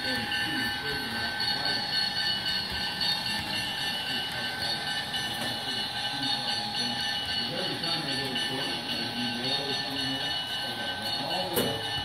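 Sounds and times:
model train whining: 0.0s - 12.0s.

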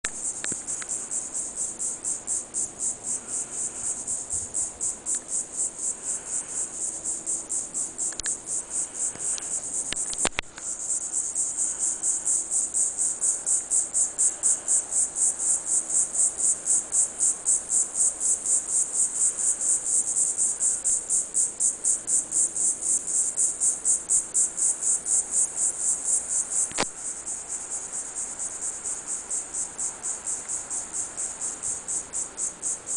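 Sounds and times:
cicadas buzzing: 0.0s - 32.9s
sharp clicks: 8.1s - 8.4s, 9.2s - 10.6s.

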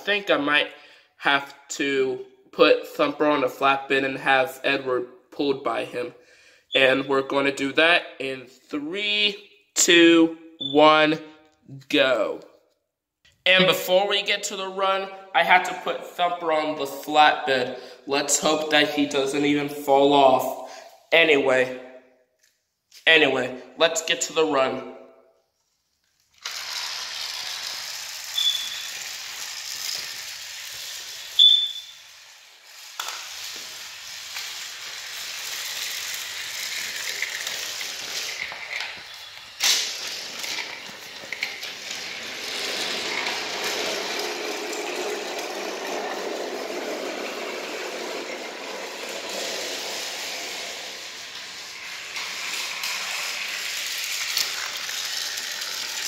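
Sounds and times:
toy train motor whirring: 26.0s - 56.0s
wheels rattling on plastic track: 26.3s - 56.0s.

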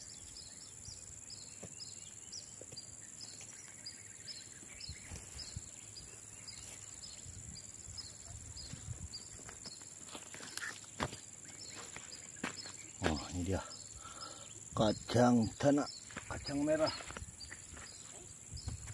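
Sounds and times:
insect chirping: 0.0s - 18.9s
insects droning: 0.0s - 18.9s
rustling and knocking of plants: 8.6s - 13.6s.

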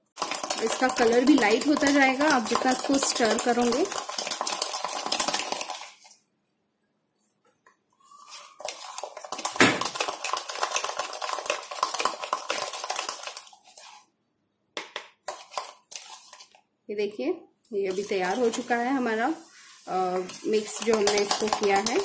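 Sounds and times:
spoon beating paste in a mug: 0.1s - 6.2s, 8.3s - 14.0s, 14.8s - 16.6s, 17.9s - 18.7s, 20.2s - 22.0s.

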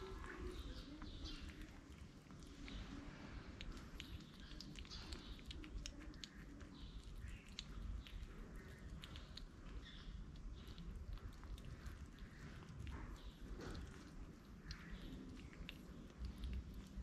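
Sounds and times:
kittens chewing wet food: 0.0s - 17.0s
low steady rumble: 0.0s - 17.0s.

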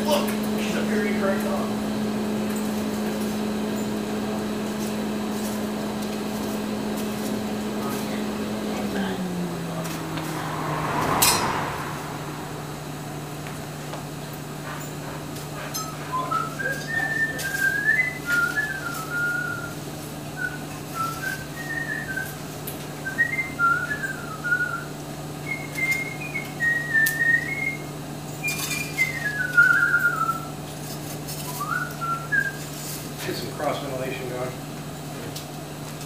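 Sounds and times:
steady low hum: 0.0s - 16.2s
person whistling a tune: 16.1s - 19.8s, 20.4s - 22.4s, 23.1s - 27.8s, 28.4s - 30.5s, 31.4s - 32.6s.

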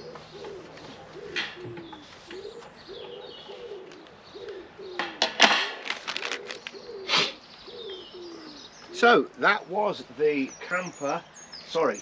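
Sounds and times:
small birds chirping: 0.0s - 5.2s, 6.0s - 12.0s
pigeon cooing: 0.0s - 9.3s.

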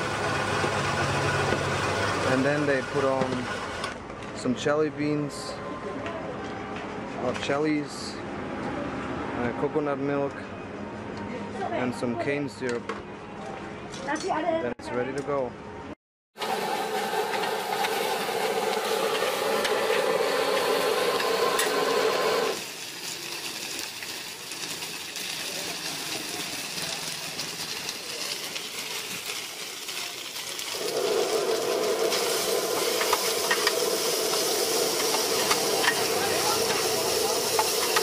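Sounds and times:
food sizzling on iron wok: 16.4s - 38.0s.

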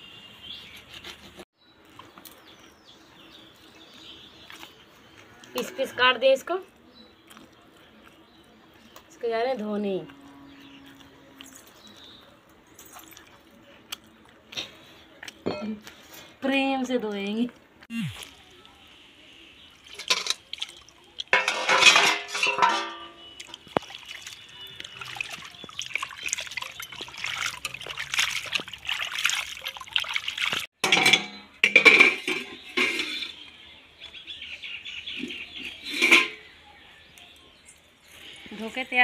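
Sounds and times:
water splashing in a steel pan: 19.3s - 33.4s
metal pan knocking: 21.3s - 23.3s.

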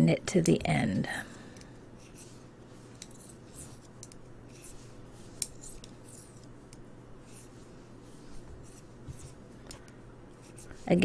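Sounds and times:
yarn rubbing on needles: 2.0s - 9.6s, 10.3s - 11.0s.

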